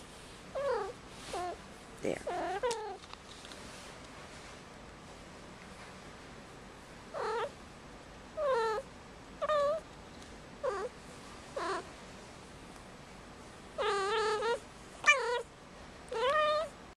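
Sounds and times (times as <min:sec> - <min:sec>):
kitten meowing: 0:13.8 - 0:15.4, 0:16.1 - 0:16.7.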